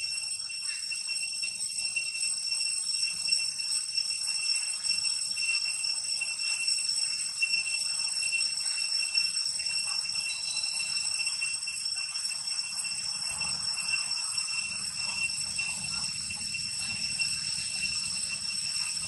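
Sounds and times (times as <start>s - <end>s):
high-pitched insect chorus: 0.0s - 19.0s.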